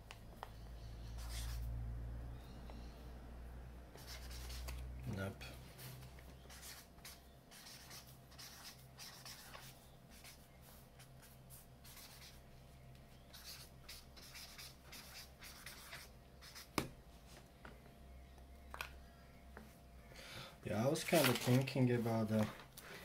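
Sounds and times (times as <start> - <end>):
marker writing on paper: 0.4 - 1.7, 3.9 - 4.8, 6.3 - 12.4, 13.1 - 16.8.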